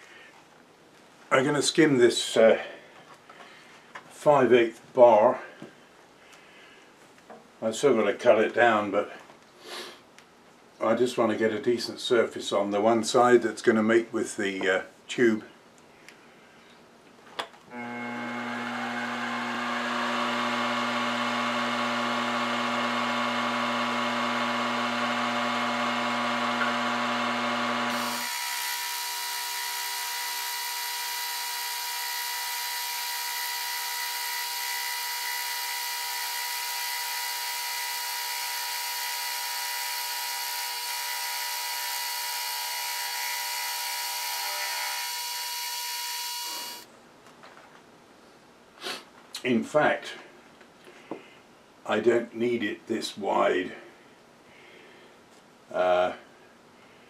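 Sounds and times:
high machine whine: 0:17.7 - 0:46.9
milling machine hum: 0:17.8 - 0:46.8.

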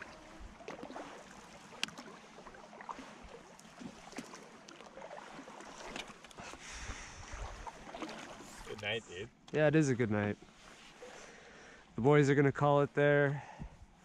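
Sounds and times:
paddle splashes and drips: 0:00.0 - 0:09.0.

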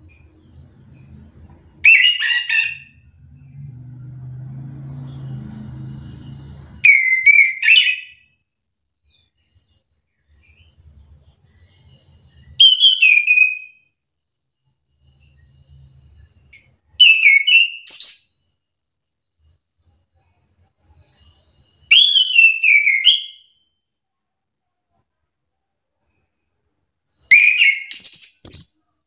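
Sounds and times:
thrush singing whistles: 0:00.0 - 0:03.6, 0:04.6 - 0:08.4, 0:09.0 - 0:14.0, 0:14.9 - 0:18.6, 0:19.4 - 0:23.8, 0:27.1 - 0:29.0.

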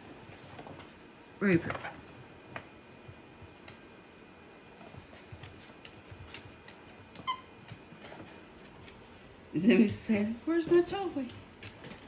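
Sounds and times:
dog moving on wooden floor: 0:04.8 - 0:09.2, 0:09.8 - 0:12.0.

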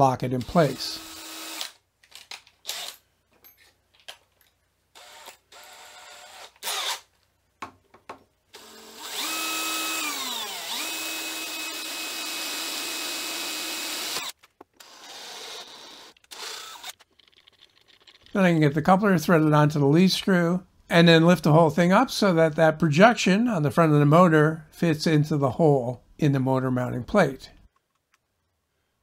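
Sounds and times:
cordless drill drilling into metal: 0:00.4 - 0:01.8, 0:02.6 - 0:03.0, 0:05.0 - 0:07.1, 0:08.6 - 0:17.0.

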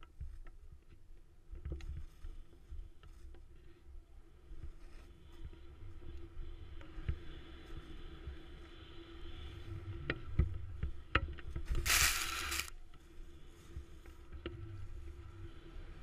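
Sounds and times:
snowboard rumbling through powder: 0:11.8 - 0:12.7
spraying snow hiss: 0:11.8 - 0:12.7.

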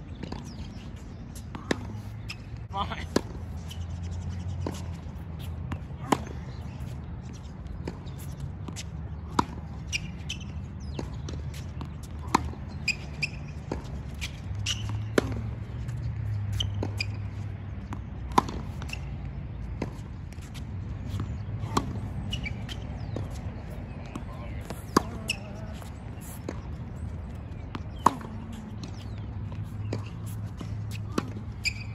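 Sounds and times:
sneakers squeaking on court: 0:00.0 - 0:31.9
tennis ball bouncing: 0:00.2 - 0:31.9
racket hitting tennis ball: 0:04.6 - 0:07.0, 0:08.7 - 0:15.6, 0:16.5 - 0:19.1, 0:19.7 - 0:26.7, 0:27.7 - 0:31.9.

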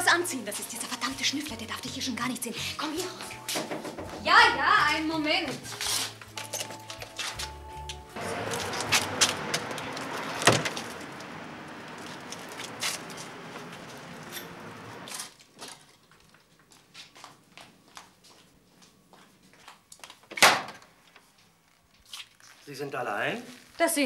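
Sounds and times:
footsteps on metal stairs: 0:03.0 - 0:04.2, 0:05.4 - 0:15.0
street noise hiss: 0:07.4 - 0:15.1.

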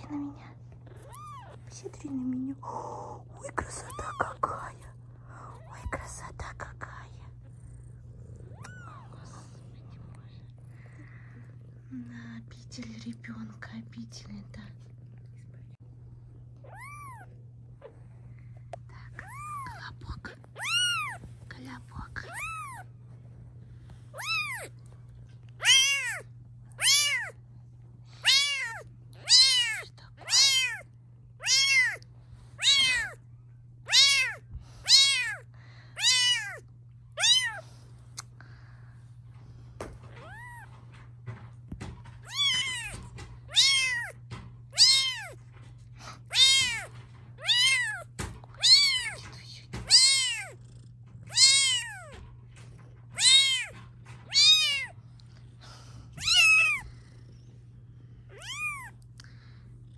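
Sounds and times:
kitten mewing: 0:00.8 - 0:01.8, 0:03.0 - 0:04.9, 0:08.4 - 0:10.0, 0:16.6 - 0:17.9, 0:19.0 - 0:21.2, 0:22.1 - 0:22.9, 0:24.1 - 0:24.8, 0:25.6 - 0:27.4, 0:28.1 - 0:32.0, 0:32.6 - 0:33.2, 0:33.9 - 0:38.3, 0:40.1 - 0:40.7, 0:42.2 - 0:45.4, 0:46.0 - 0:50.6, 0:51.2 - 0:52.3, 0:53.1 - 0:55.0, 0:55.7 - 0:57.0, 0:58.3 - 0:59.1.

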